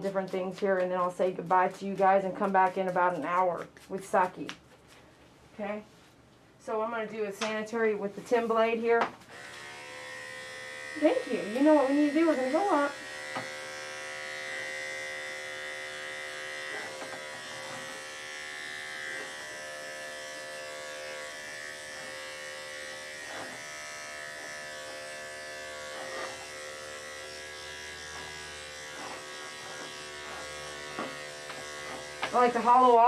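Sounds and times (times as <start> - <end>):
electric clippers humming: 9.2 - 33.0.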